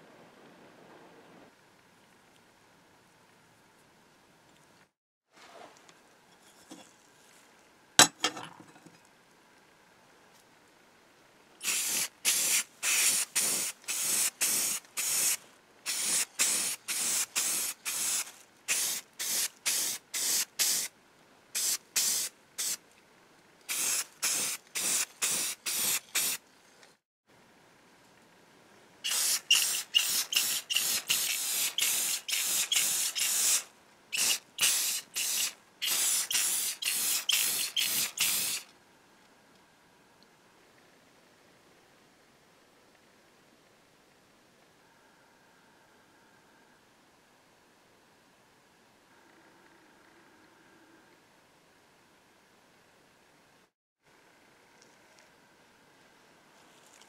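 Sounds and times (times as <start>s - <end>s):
spray paint can hissing: 11.6s - 20.9s, 21.6s - 22.8s, 23.7s - 26.4s, 29.0s - 38.7s.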